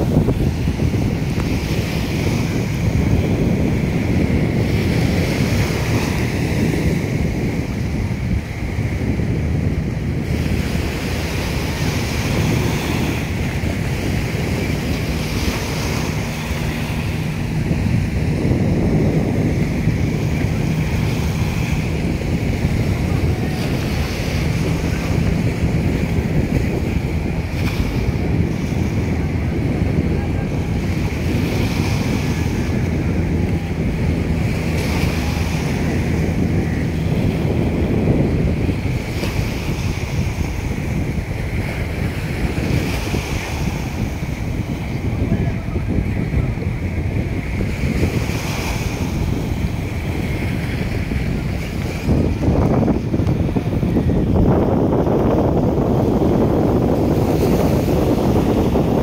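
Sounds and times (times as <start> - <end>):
choppy water: 0.0 - 59.0
faint low engine hum: 0.0 - 59.0
wind buffeting microphone: 0.0 - 59.0.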